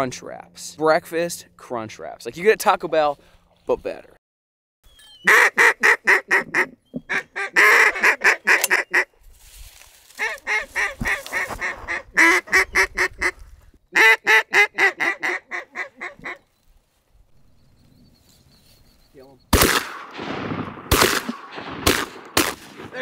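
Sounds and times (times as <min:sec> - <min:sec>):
duck call quacks: 0:05.2 - 0:09.1, 0:10.2 - 0:16.4.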